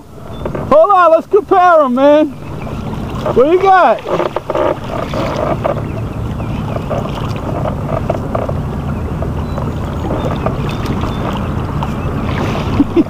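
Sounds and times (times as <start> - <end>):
water noise: 0.0 - 13.0
wind noise on microphone: 2.1 - 13.0.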